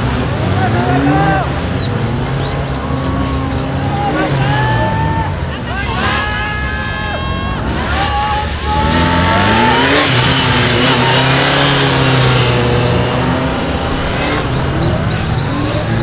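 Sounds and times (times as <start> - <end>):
motorcycle engine revving: 7.5 - 16.0.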